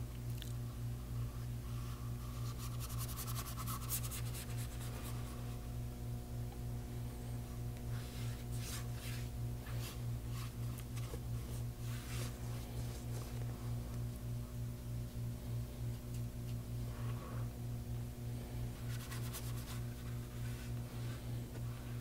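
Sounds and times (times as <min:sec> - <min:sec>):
steady low hum: 0:00.0 - 0:22.0
paintbrush scratching on board: 0:02.3 - 0:05.1.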